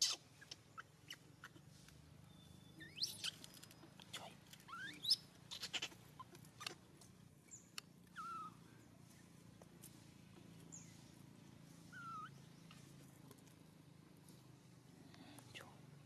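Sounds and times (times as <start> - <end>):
baby monkey crying faintly: 0.0 - 1.7, 2.8 - 6.8, 8.1 - 8.9, 11.8 - 12.9.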